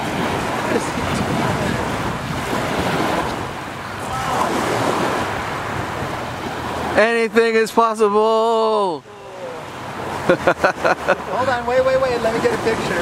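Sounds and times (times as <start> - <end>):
wind blowing on microphone: 0.0 - 7.0
waves washing onto pebbles: 0.0 - 7.7.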